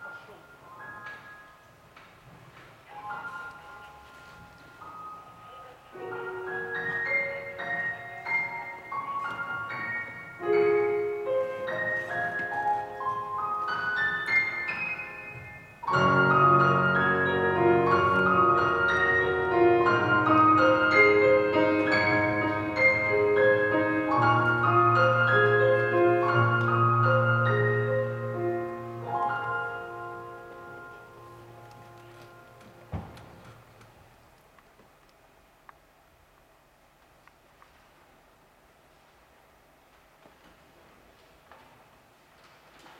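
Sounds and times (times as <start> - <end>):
grand piano playing: 0.0 - 34.2.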